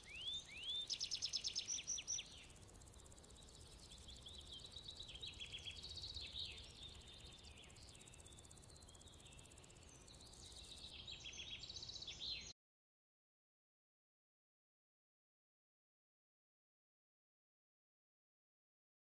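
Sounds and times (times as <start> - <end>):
low steady background noise: 0.0 - 12.5.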